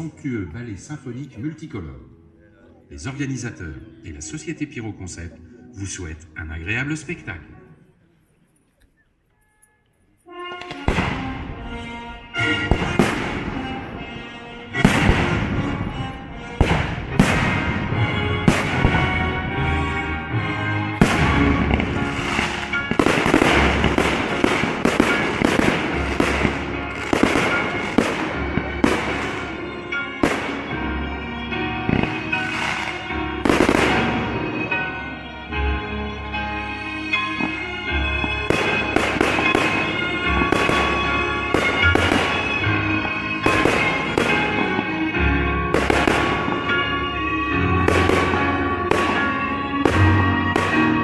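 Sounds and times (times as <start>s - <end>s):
classical music: 0.0s - 51.0s
firework shells bursting: 14.8s - 19.2s, 21.0s - 30.7s, 31.9s - 34.6s, 38.3s - 45.0s.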